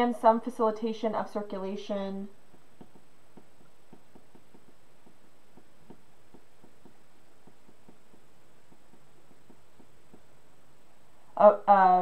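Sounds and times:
background hiss: 0.0s - 12.0s
stylus tapping on a screen: 2.4s - 10.5s.

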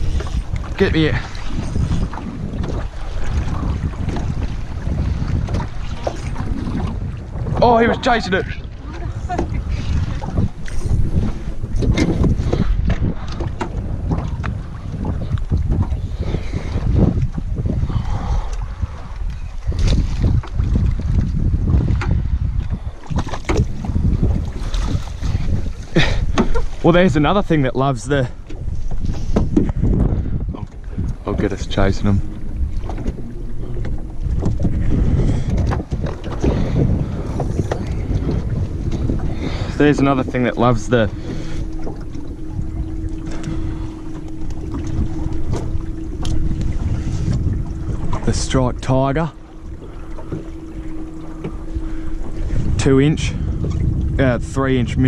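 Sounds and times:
wind buffeting microphone: 0.0s - 55.0s
knocks on boat: 11.2s - 16.0s, 26.2s - 26.6s.

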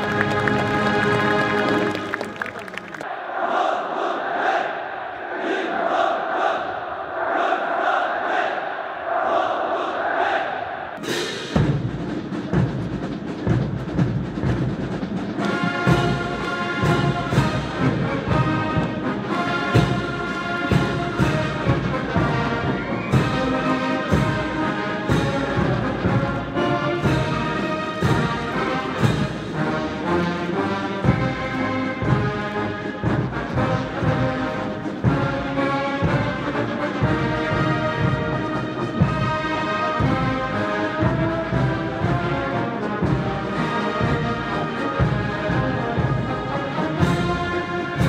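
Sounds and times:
military brass band playing: 0.0s - 3.1s, 11.0s - 48.0s
crowd shouting: 0.0s - 11.0s.

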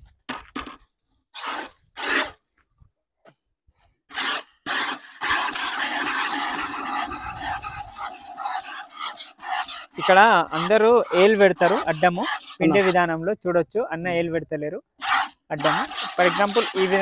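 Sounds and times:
milk squirting into plastic bucket: 4.1s - 12.9s, 15.0s - 17.0s.

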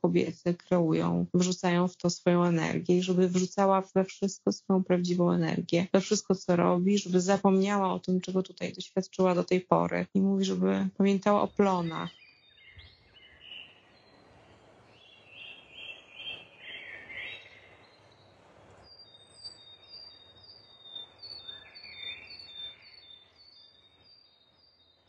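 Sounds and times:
faint birdsong: 10.4s - 25.0s.

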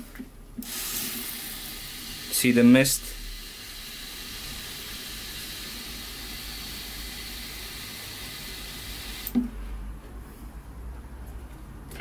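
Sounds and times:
fuel injector spray hiss: 0.6s - 9.4s.

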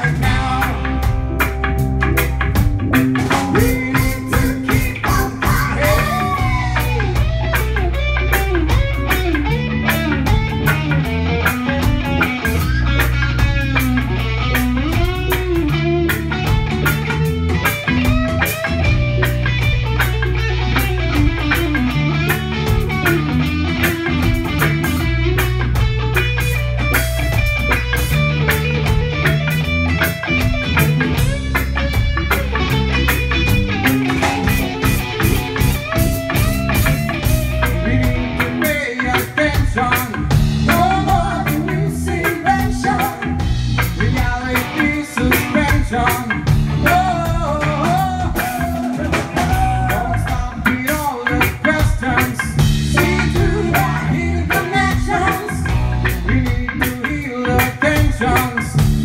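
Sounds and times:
reggae band music: 0.0s - 59.0s.

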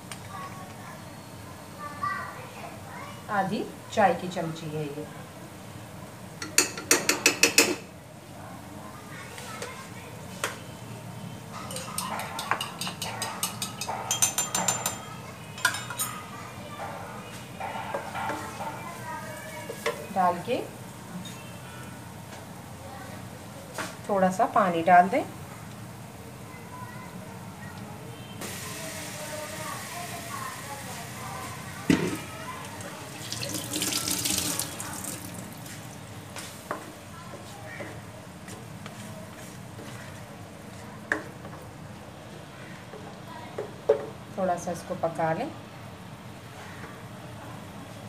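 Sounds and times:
teaspoon clinking on kitchenware: 11.6s - 16.2s
water pouring into a pan: 32.1s - 35.8s.

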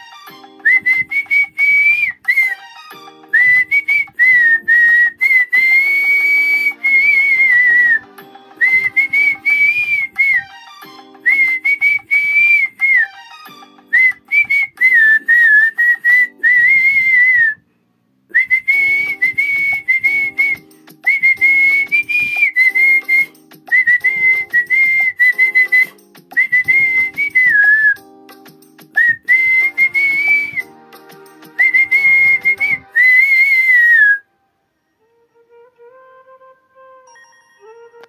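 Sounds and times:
man whistling a melody: 0.6s - 10.4s, 11.2s - 13.1s, 13.9s - 17.7s, 18.3s - 28.1s, 28.9s - 30.8s, 31.5s - 34.3s.

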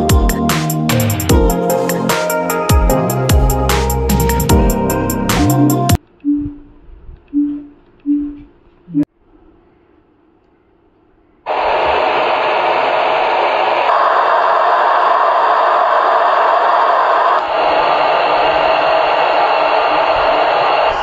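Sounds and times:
electronic music with heavy bass: 0.0s - 6.0s.

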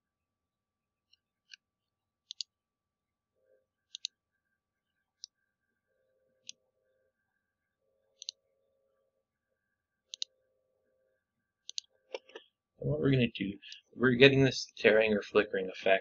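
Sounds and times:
computer mouse clicking: 2.3s - 2.5s, 3.9s - 4.2s, 8.2s - 8.4s, 10.1s - 10.3s, 11.6s - 12.4s.

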